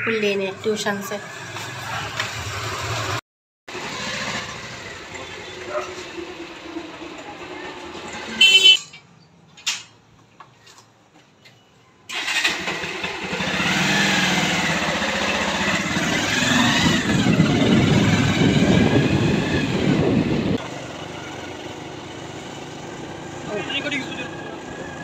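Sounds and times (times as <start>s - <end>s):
motorbike engine: 0.7s - 9.0s, 12.1s - 25.0s
wind buffeting microphone: 16.4s - 20.6s.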